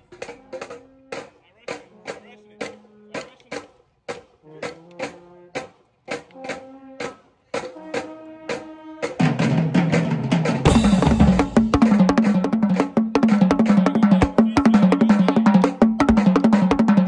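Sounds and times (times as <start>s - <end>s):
marching tenor drums: 0.0s - 17.0s
cymbal crash: 10.7s - 11.8s.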